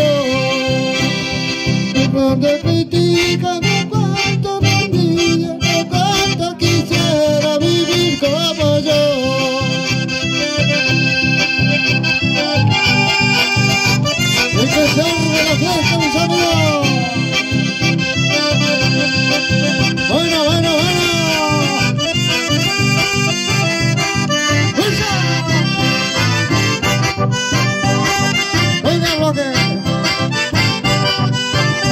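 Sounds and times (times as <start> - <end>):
accordion dance music: 0.0 - 31.9
steady bass beat: 10.6 - 31.9.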